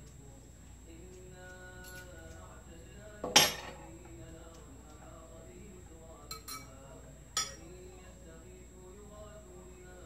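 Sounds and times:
metal clinking on glass: 3.3s - 3.9s, 6.3s - 6.8s, 7.4s - 7.7s.

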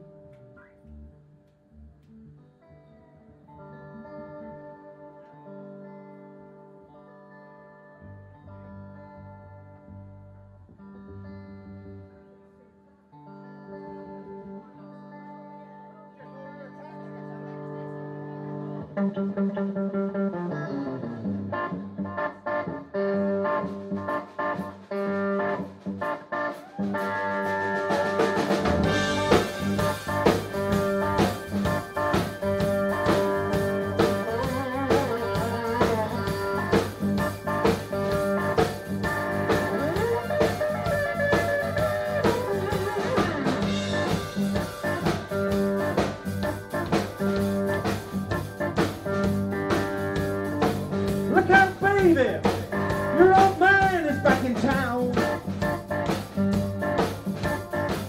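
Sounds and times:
live blues band playing: 13.3s - 58.0s
electric guitar bent notes: 18.4s - 58.0s.

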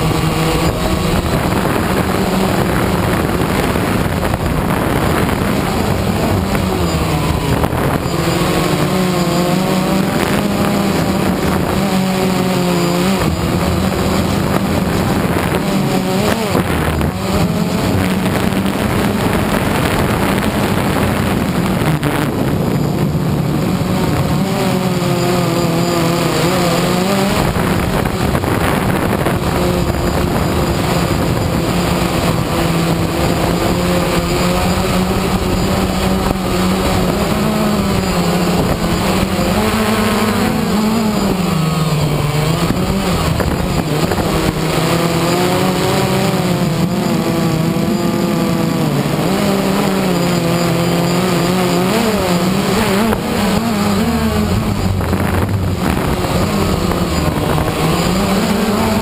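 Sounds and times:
drone motors whining: 0.0s - 59.0s.

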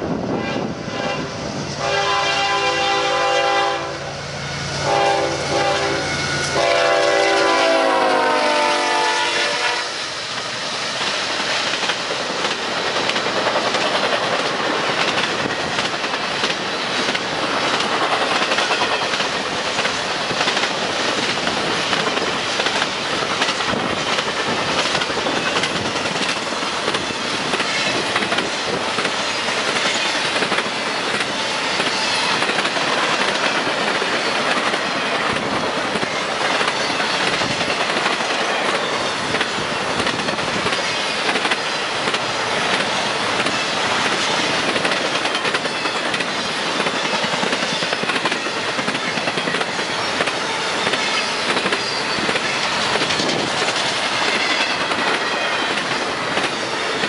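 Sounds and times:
freight train wheels rattling: 0.0s - 57.0s
high wheel squeals: 30.9s - 32.4s, 49.9s - 53.0s.

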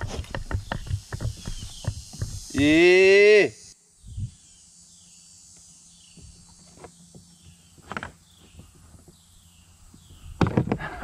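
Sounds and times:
falling insect chirp: 0.0s - 11.0s
insect buzzing: 0.0s - 11.0s.

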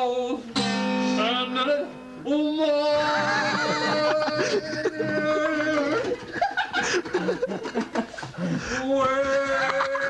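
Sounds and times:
man talking: 1.8s - 6.2s.

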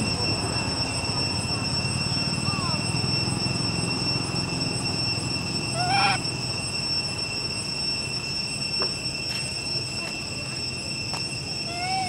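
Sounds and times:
high-pitched whine: 0.0s - 12.0s
faint falling squeak: 1.8s - 6.3s
short animal call: 5.8s - 6.2s.

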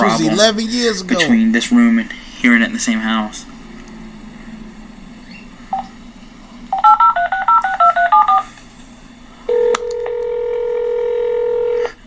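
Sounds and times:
steady phone line tone: 6.7s - 8.5s, 9.5s - 12.0s
telephone keypad beeps: 6.8s - 8.4s.

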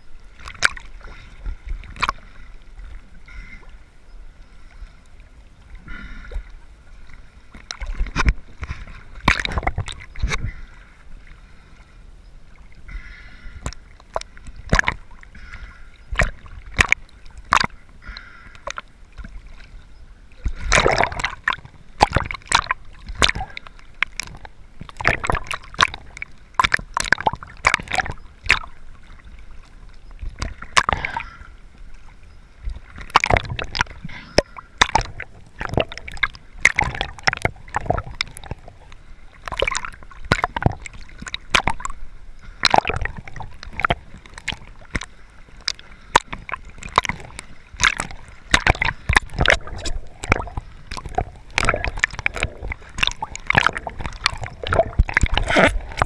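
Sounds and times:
water sloshing and gurgling: 0.0s - 56.0s.

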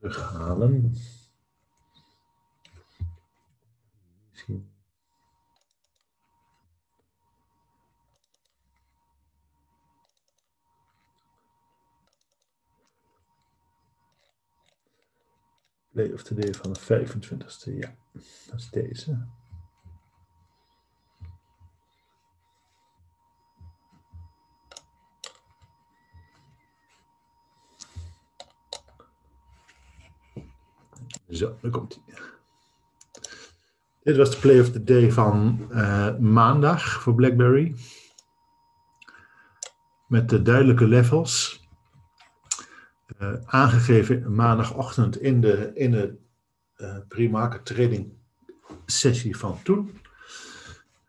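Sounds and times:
faint steady high tone: 0.0s - 50.9s
computer mouse clicks: 5.5s - 6.1s, 8.1s - 8.9s, 10.0s - 11.3s, 12.0s - 14.8s, 16.4s - 16.9s, 24.1s - 25.7s, 27.8s - 29.0s, 33.0s - 33.4s.

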